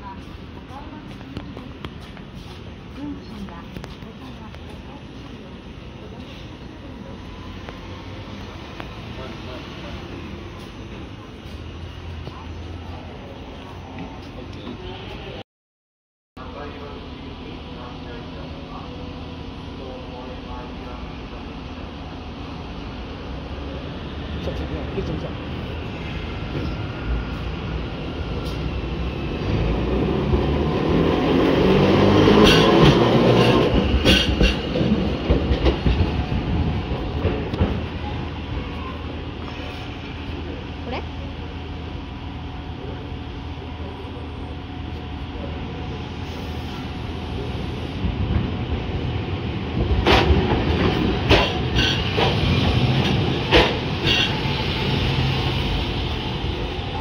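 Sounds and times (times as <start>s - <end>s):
streetcar rumble and motor hum: 0.0s - 15.4s, 16.4s - 57.0s.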